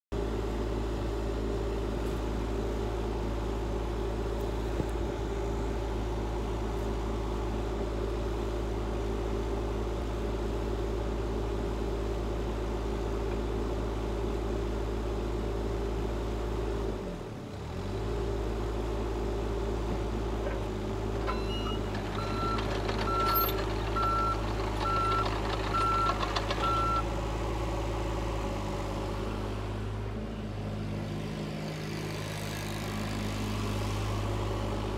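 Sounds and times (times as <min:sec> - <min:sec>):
excavator diesel engine running: 0:00.2 - 0:34.9
electronic warning beeps: 0:21.3 - 0:27.0.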